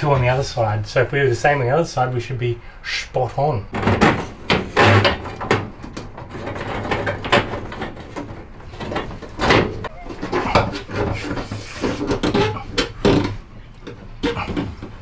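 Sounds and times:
plastic conduit scraping on metal: 3.8 - 15.0.

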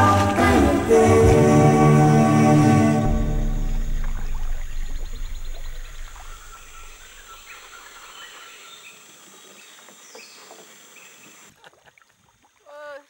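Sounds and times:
music: 0.0 - 5.8
rapid pulsed trill: 0.8 - 7.7
insect drone: 0.9 - 8.3
bird calls: 2.4 - 11.4.

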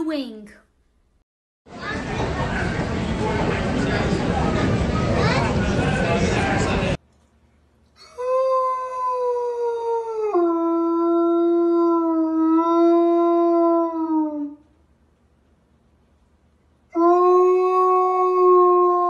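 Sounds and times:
dog howling: 17.0 - 19.0.

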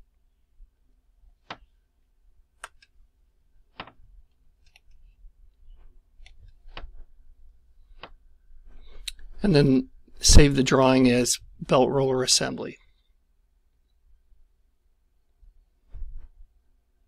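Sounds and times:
computer mouse clicking: 4.6 - 5.1, 6.2 - 7.0.

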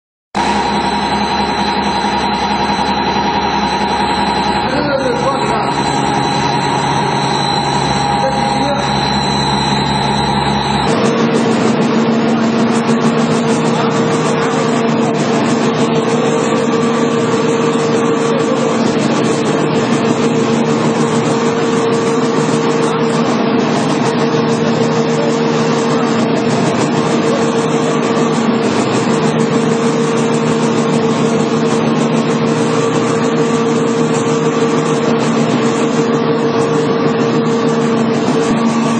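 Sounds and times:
machinery droning: 0.4 - 38.9.

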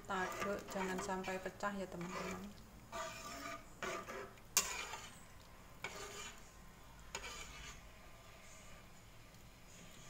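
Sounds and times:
spatula scraping a wok: 0.0 - 6.5, 7.1 - 8.9.

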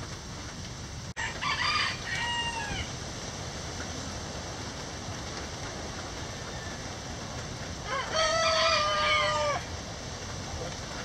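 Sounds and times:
steady rain hiss: 0.0 - 11.0
rooster crowing: 1.2 - 3.0, 6.3 - 7.0, 7.8 - 9.8.

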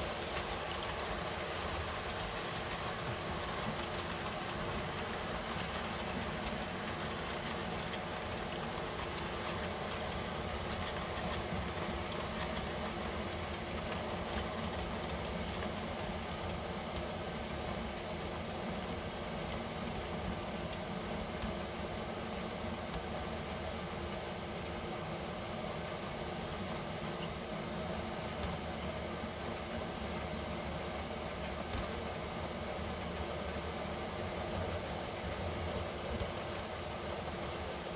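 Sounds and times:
model train wheels rolling: 0.0 - 23.6, 28.3 - 37.9.

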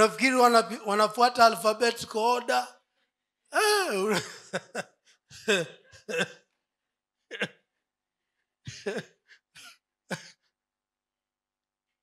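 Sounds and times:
man laughing into microphone: 3.6 - 4.8.

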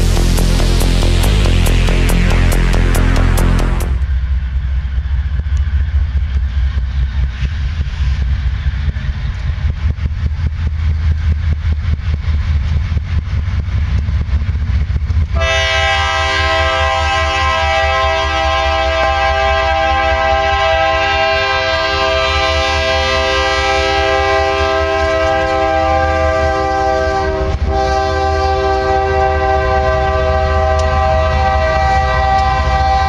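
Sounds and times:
locomotive horn chord: 0.0 - 4.0, 15.4 - 33.0
intro music: 0.0 - 4.3
diesel locomotives rumbling: 0.0 - 33.0.

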